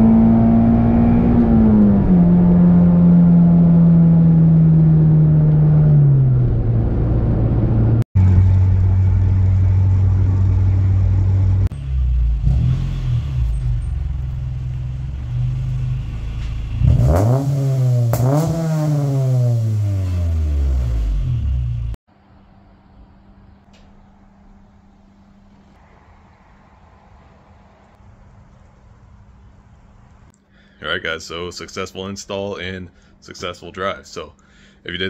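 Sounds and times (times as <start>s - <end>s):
car engine revving: 0.0s - 22.0s
car engine through exhaust: 0.0s - 30.3s.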